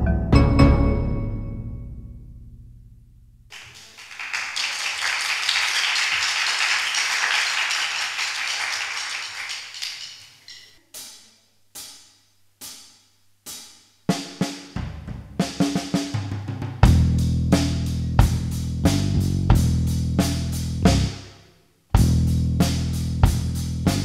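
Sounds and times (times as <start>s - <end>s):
audience applause: 3.5s - 10.4s
drumsticks clicking: 9.6s - 10.8s
drum kit playing: 13.5s - 21.3s, 22.0s - 24.0s.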